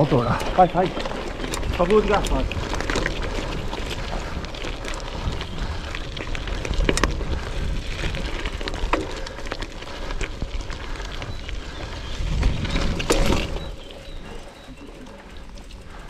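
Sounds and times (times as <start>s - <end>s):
tyres crunching over gravel: 0.0s - 16.0s
wind rumble on microphone: 0.0s - 16.0s
bike knocks and rattles: 12.4s - 14.0s.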